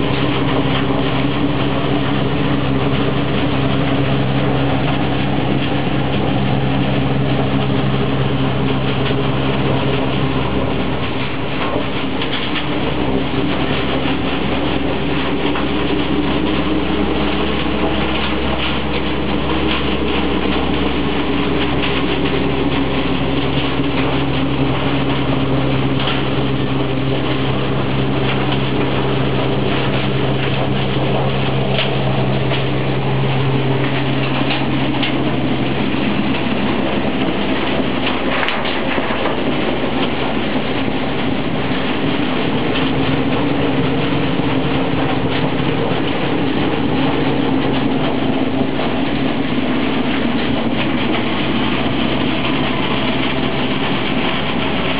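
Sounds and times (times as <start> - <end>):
hay blower drone: 0.0 - 54.9
rush of air and hay: 0.0 - 54.9.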